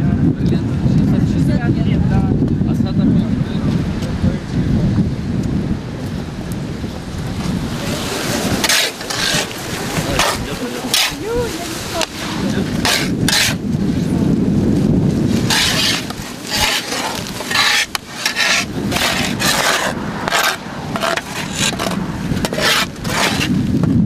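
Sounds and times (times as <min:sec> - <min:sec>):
shovels scraping wet soil: 0:07.8 - 0:13.7, 0:15.2 - 0:23.6.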